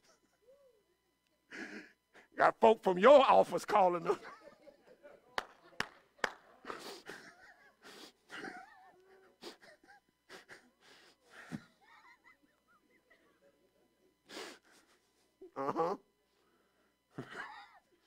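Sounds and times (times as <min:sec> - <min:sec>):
man wheezy breathing: 0:01.5 - 0:02.4, 0:06.7 - 0:08.4.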